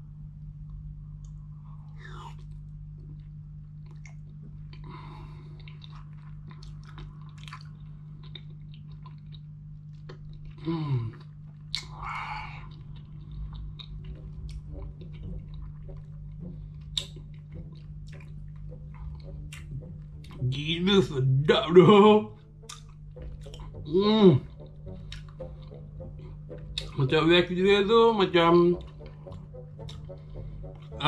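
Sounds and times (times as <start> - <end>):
honeycomb chewing: 2.4 - 20.4, 22.4 - 27.0
person humming mmm: 10.5 - 20.5, 22.4 - 27.0.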